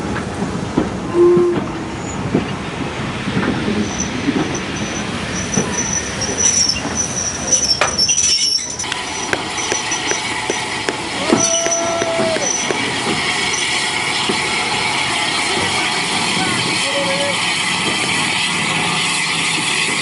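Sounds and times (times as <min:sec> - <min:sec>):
wheels clicking over rail joints: 0:00.0 - 0:16.6
steam locomotive running slowly: 0:00.0 - 0:20.0
railway wheel squeal: 0:01.0 - 0:20.0
train whistle: 0:01.1 - 0:01.9, 0:11.2 - 0:12.8.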